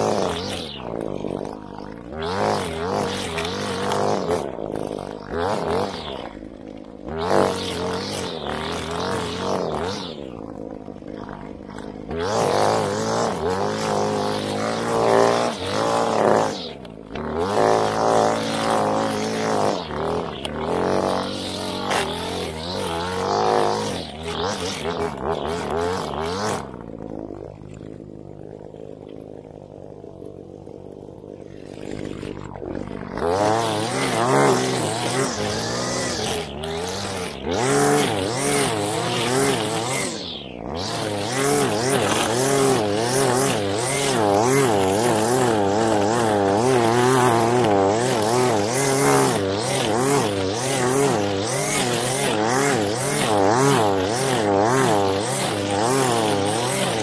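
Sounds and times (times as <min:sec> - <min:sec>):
string trimmer engine revving: 0:00.0 - 0:57.0.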